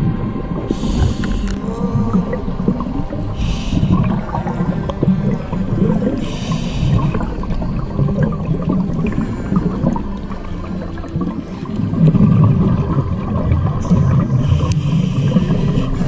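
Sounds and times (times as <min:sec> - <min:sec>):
underwater exhalation bubbling: 0:00.0 - 0:16.0
regulator inhale hiss: 0:00.7 - 0:01.6, 0:03.4 - 0:04.8, 0:06.0 - 0:07.4, 0:14.4 - 0:16.0.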